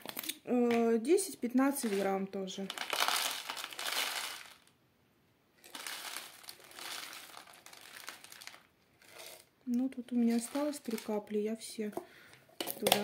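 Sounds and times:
grains rattling onto plastic tray: 0:01.7 - 0:04.7, 0:05.6 - 0:09.5, 0:10.1 - 0:11.3.

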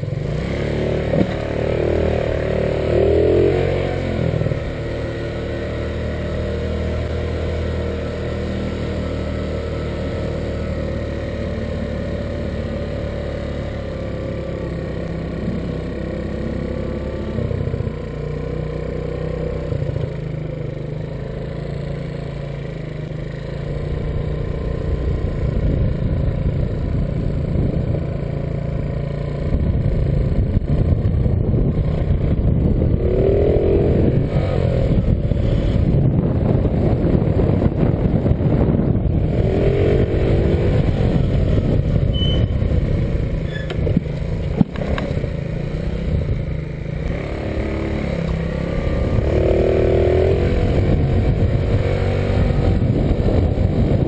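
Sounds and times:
motor scooter engine rumble: 0:00.0 - 0:54.0
short higher-pitched whines: 0:42.1 - 0:42.7.

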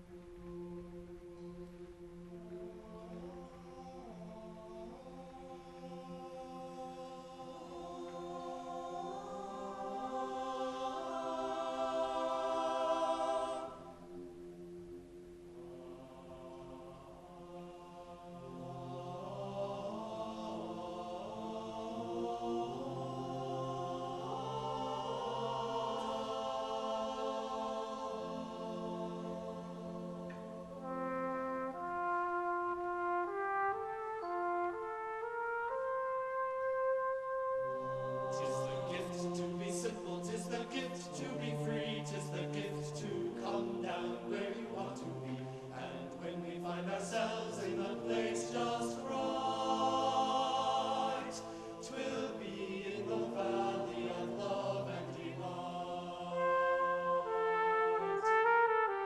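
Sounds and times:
male voices singing chords: 0:02.5 - 0:32.0, 0:37.7 - 0:58.3.

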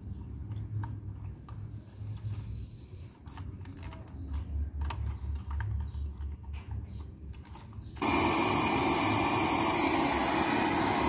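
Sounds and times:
small clicks handling circuit board: 0:00.4 - 0:08.0.

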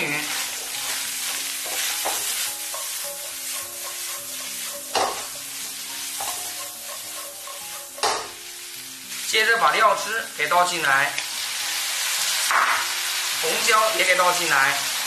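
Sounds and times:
food sizzling in a wok: 0:00.0 - 0:15.0
spatula scraping a pan: 0:00.1 - 0:08.4.

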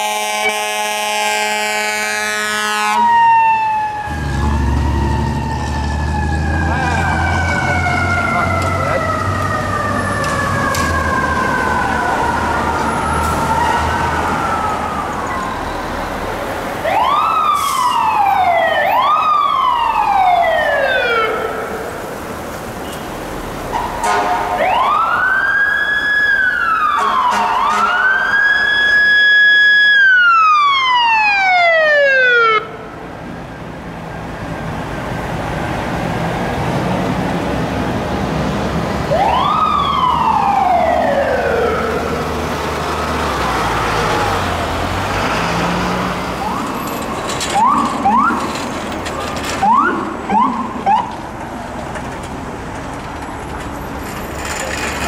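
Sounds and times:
emergency vehicle sirens: 0:00.0 - 0:55.0
traffic noise: 0:00.0 - 0:55.0
short rising siren chirps: 0:02.7 - 0:16.2.

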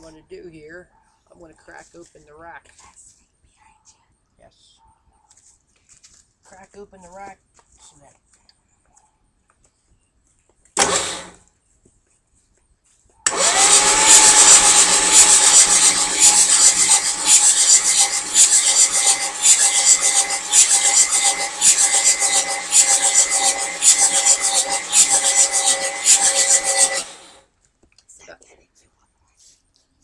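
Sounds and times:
starter motor cranking engine: 0:10.8 - 0:11.4, 0:13.3 - 0:27.4.

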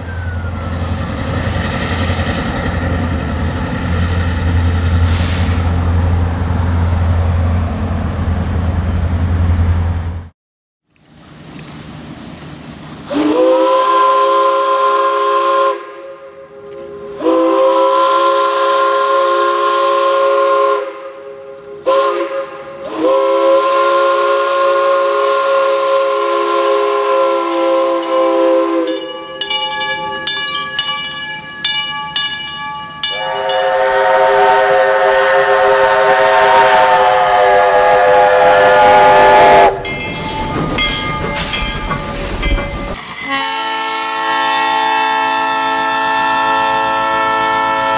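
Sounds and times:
steam locomotive whistle: 0:00.0 - 0:01.1, 0:13.1 - 0:30.3, 0:33.0 - 0:41.7, 0:43.2 - 0:47.9.

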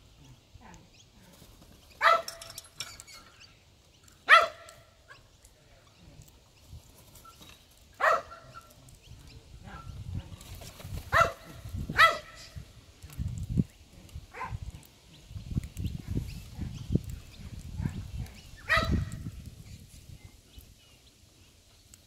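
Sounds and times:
dog barking: 0:02.0 - 0:02.4, 0:04.3 - 0:05.2, 0:08.0 - 0:08.5, 0:11.1 - 0:12.4, 0:14.3 - 0:14.6, 0:18.7 - 0:19.0.

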